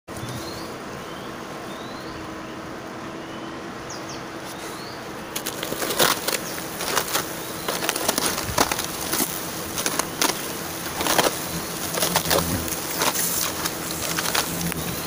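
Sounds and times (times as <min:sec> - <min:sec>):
hornets buzzing: 0:00.1 - 0:15.0
hand tapping paper nest: 0:05.4 - 0:15.0.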